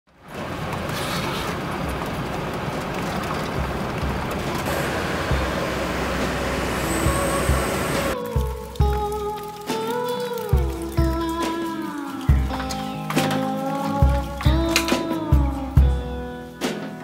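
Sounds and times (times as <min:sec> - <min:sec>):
road and engine noise in car: 0:00.1 - 0:08.2.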